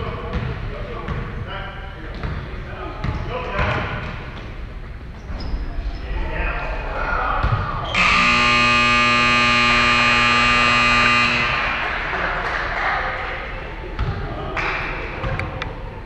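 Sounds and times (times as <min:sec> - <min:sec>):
scoreboard buzzer tone: 0:07.9 - 0:12.0.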